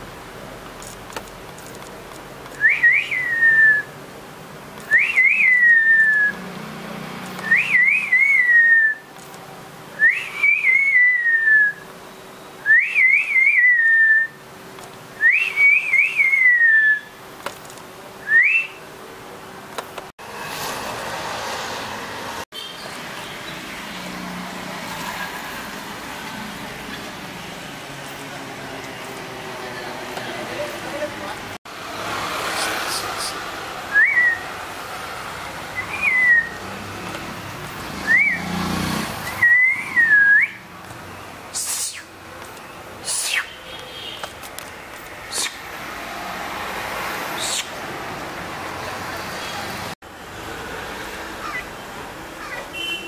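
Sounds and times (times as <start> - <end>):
person whistling: 2.6 - 3.9, 4.9 - 6.4, 7.4 - 9.0, 10.0 - 11.8, 12.7 - 14.4, 18.3 - 18.8, 33.9 - 34.4, 35.8 - 36.6, 39.4 - 40.6.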